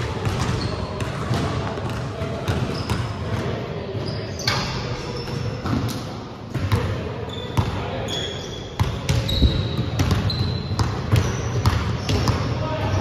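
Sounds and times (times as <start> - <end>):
sneaker squeaks: 0.3 - 1.1, 2.5 - 3.2, 4.0 - 6.0, 7.2 - 13.0.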